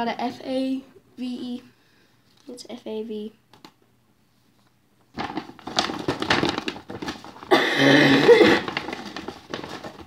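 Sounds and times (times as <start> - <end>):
paper bag rustling: 5.1 - 7.6, 8.2 - 10.0.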